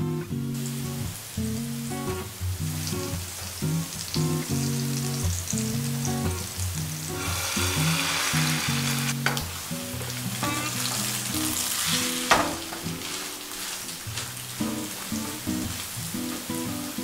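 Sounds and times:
bread sizzling in butter: 0.6s - 17.0s
spatula scraping pan: 7.1s - 9.4s.

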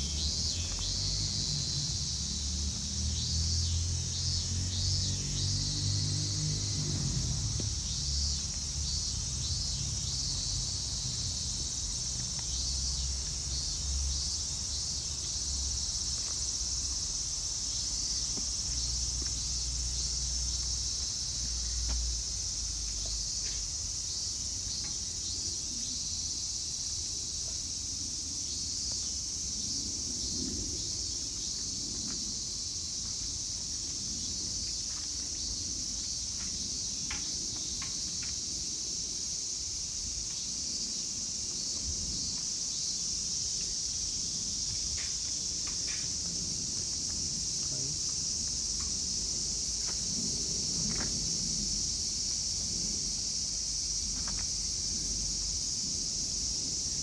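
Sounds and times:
chorus of singing insects: 0.0s - 57.0s.

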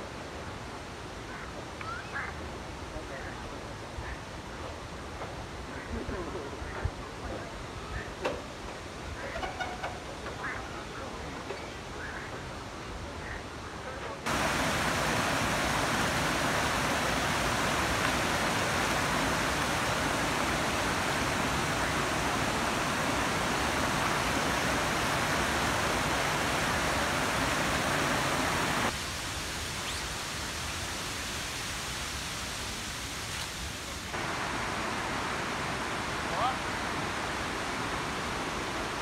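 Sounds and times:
waterfall rushing: 14.2s - 39.0s.

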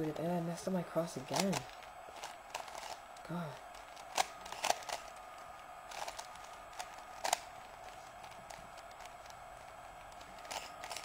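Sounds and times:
faint steady hiss: 0.0s - 11.0s
plastic puzzle cube clicking: 4.0s - 5.1s, 5.9s - 9.4s.

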